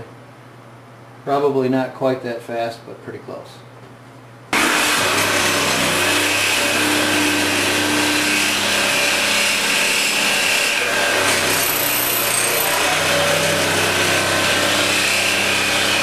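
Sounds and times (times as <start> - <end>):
handheld power tool running: 4.6 - 16.0.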